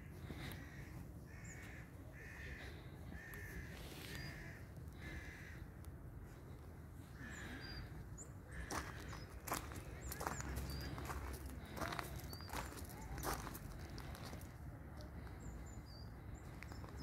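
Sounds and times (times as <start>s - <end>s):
bird cawing: 0.1s - 5.8s
small birds chirping: 7.1s - 17.0s.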